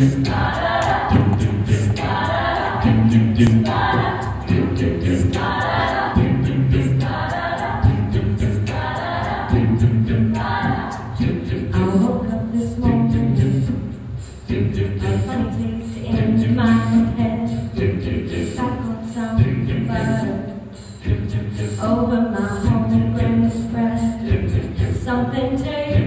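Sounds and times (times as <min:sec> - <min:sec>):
low bass vocal notes: 0:00.0 - 0:13.9
a cappella group singing: 0:00.0 - 0:26.0.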